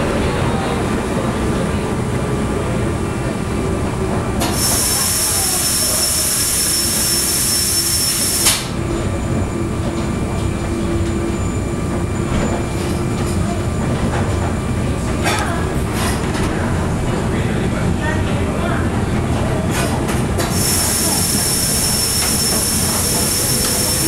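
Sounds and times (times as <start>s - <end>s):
train wheels and rack gear rumble: 0.0s - 24.0s
high squeal: 4.7s - 8.4s.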